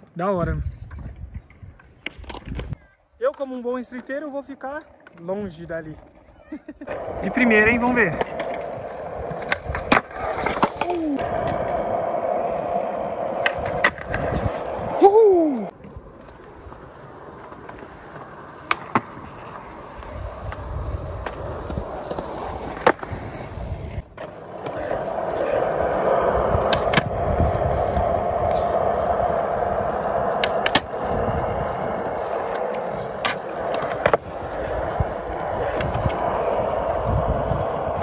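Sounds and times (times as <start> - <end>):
skateboard wheels rolling on concrete: 0.0 - 38.0
skateboard clacks: 6.9 - 15.0, 15.6 - 38.0.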